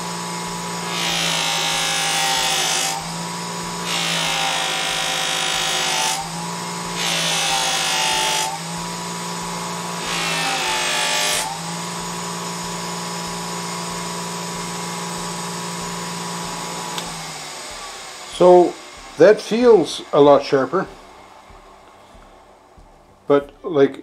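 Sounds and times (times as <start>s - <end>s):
bench grinder motor humming: 0.0s - 23.2s
knife blade rubbing buffing wheel: 0.5s - 22.4s.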